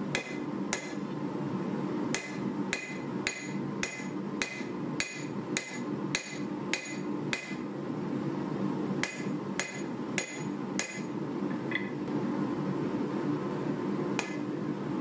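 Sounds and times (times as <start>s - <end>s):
hammer blows on anvil: 2.1s - 7.6s
hammer clinking on anvil: 2.2s - 7.6s.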